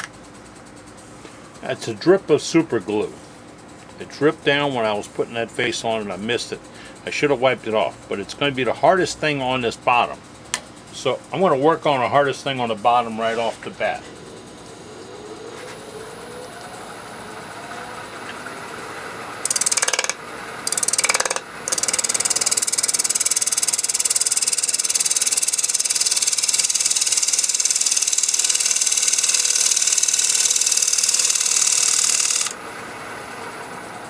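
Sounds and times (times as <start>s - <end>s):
wood lathe running: 14.0s - 32.7s
turning tool cutting wood: 19.4s - 32.6s.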